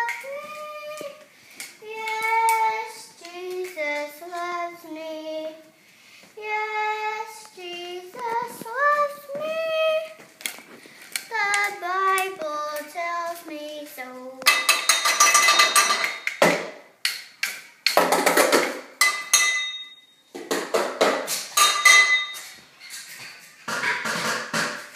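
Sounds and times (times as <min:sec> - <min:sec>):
child singing: 0:00.0 - 0:05.8, 0:06.4 - 0:10.3, 0:11.2 - 0:14.6.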